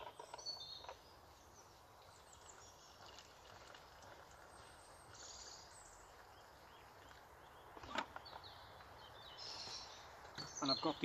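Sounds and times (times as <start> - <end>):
water pouring into a cup: 2.4 - 5.2
faint bird chirps: 4.4 - 11.0.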